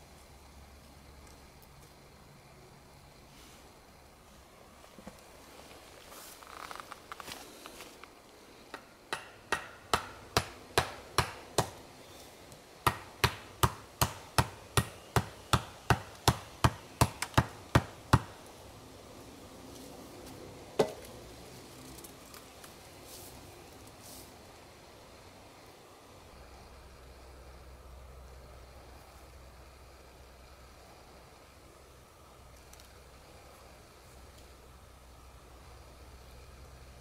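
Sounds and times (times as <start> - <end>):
hatchet knocking wooden stake: 8.7 - 11.8, 12.9 - 18.3.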